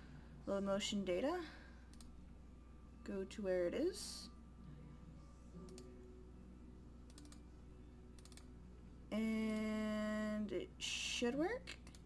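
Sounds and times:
computer mouse clicking: 1.9 - 2.1, 7.1 - 7.4, 8.2 - 8.5, 11.8 - 12.0.

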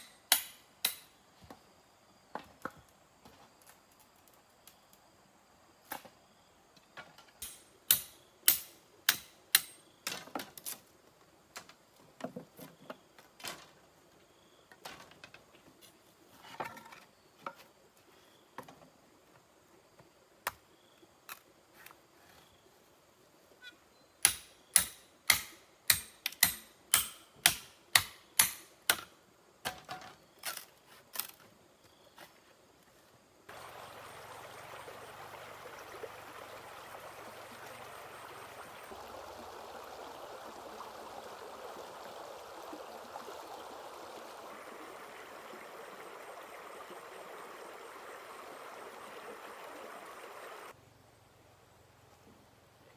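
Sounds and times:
tool striking bamboo: 0.0 - 1.1, 7.4 - 9.8, 24.2 - 30.1
stream rushing: 33.5 - 50.8.

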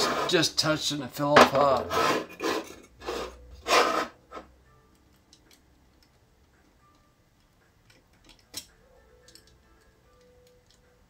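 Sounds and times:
hand tool scraping metal: 0.0 - 0.5, 1.4 - 4.5.

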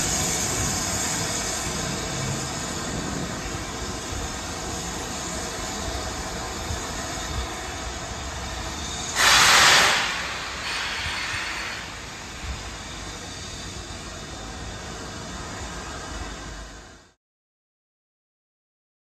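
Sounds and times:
steam hissing: 0.0 - 17.1
low rumble of departing train: 0.0 - 17.2.

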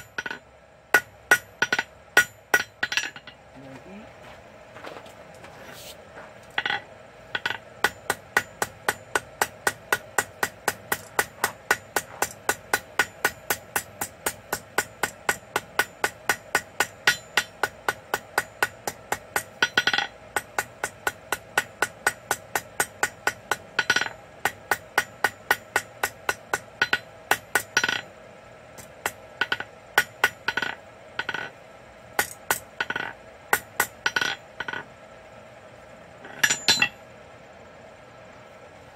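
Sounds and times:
hammer clanging on anvil: 0.0 - 0.4, 1.0 - 3.4, 6.6 - 17.7, 18.4 - 20.2, 22.8 - 28.1, 29.4 - 31.5, 32.2 - 34.8, 36.3 - 37.0
steady hum: 0.0 - 38.9.

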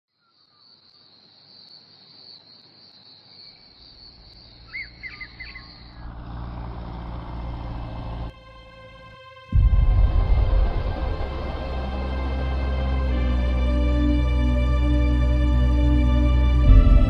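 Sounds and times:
insects chirring: 0.1 - 8.3
bird chirps: 2.4 - 6.7
propeller plane engine drone: 4.9 - 17.0.

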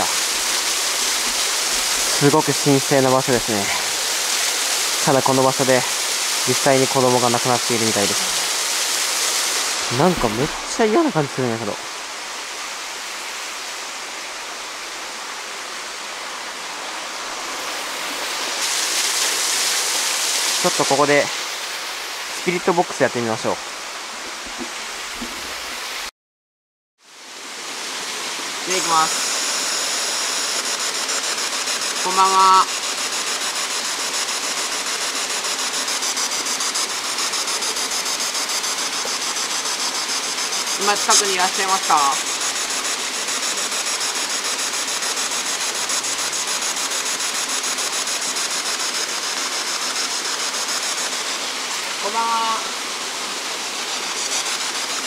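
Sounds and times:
waterfall rushing: 0.0 - 26.1, 27.1 - 55.0
pulsing radio static: 9.6 - 11.8, 28.7 - 30.2, 31.9 - 32.8, 40.8 - 42.3.

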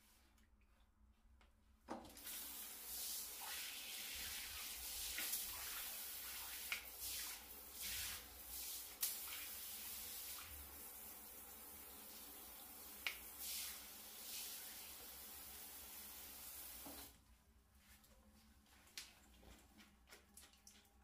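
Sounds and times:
shower spraying onto tiles: 2.1 - 17.1.

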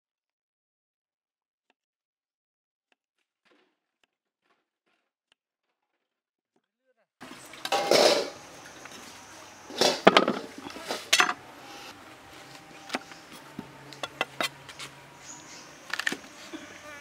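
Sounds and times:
carrots clattering on steel tray: 7.4 - 11.4.

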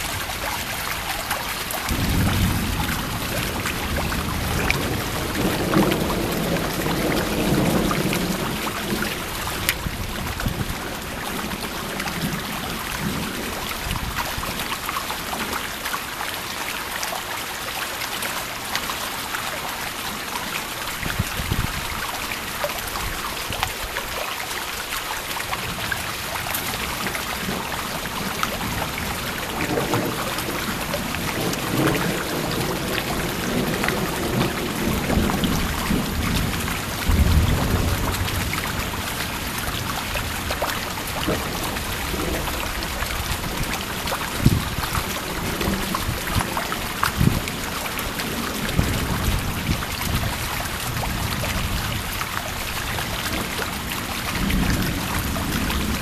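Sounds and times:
thunder rumbling: 0.0 - 14.6, 25.6 - 56.0
steady rain: 0.0 - 56.0.

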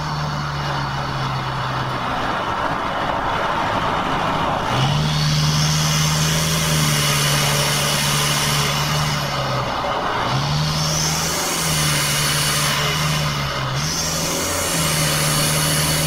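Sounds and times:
diesel engine droning: 0.0 - 16.0
road and wind noise: 0.0 - 16.0.

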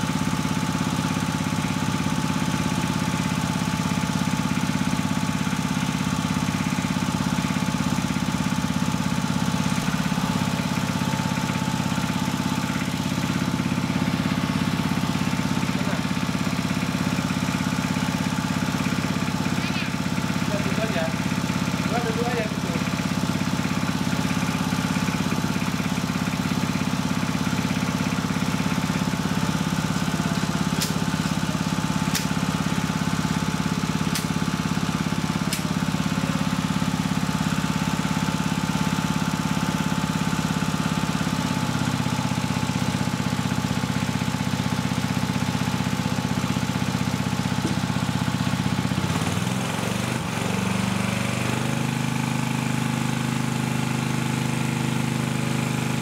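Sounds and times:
motor-driven pump humming: 0.0 - 56.0.

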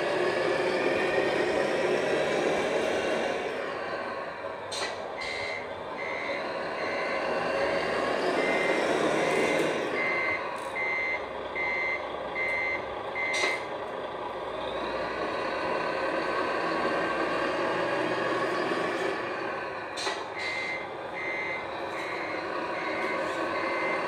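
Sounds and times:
simulated diesel engine running: 0.0 - 24.0
short high reversing beeps: 20.4 - 24.0.

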